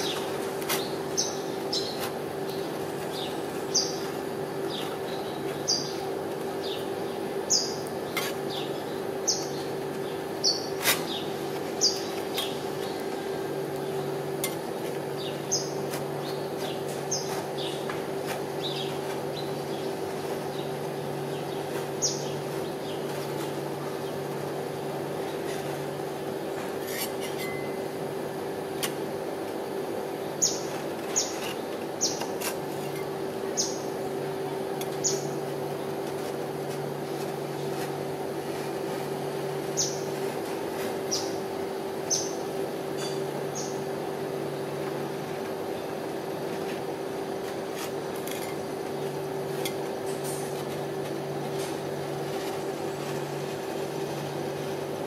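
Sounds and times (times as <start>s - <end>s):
refrigeration unit humming: 0.0s - 55.0s.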